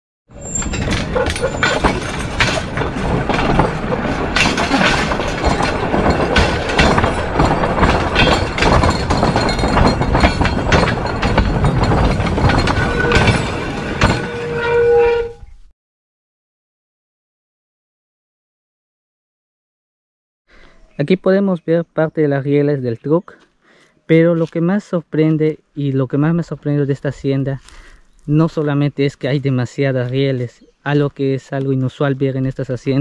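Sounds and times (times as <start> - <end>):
rail cart clattering over rails: 0.3 - 15.0.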